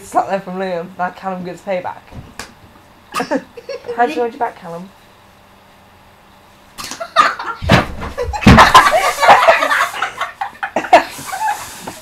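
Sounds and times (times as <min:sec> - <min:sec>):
body falling to floor: 0:07.6 - 0:08.9
boys laughing and yelling: 0:08.2 - 0:12.0.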